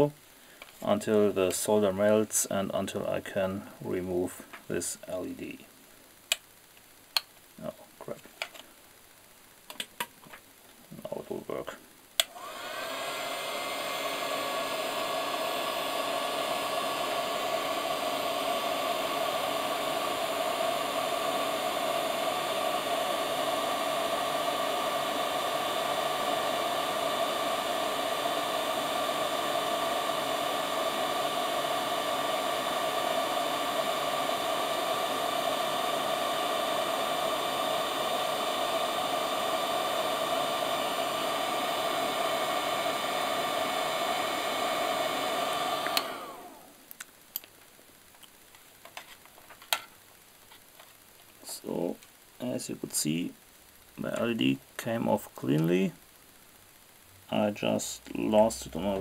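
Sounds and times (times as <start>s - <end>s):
heat gun blowing air: 12.2s - 46.8s.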